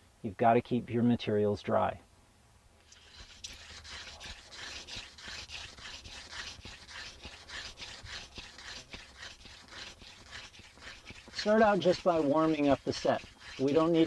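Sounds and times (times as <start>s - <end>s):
spindle rasping on fireboard: 2.8s - 14.0s.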